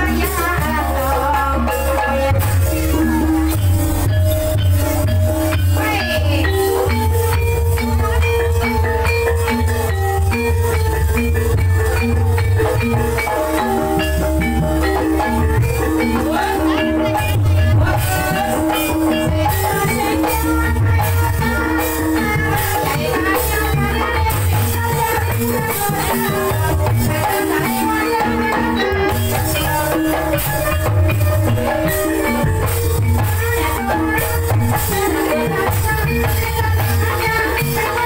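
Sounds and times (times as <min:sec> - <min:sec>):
drums: 0:00.0 - 0:38.0
tuned percussion playing patterns: 0:00.0 - 0:38.0.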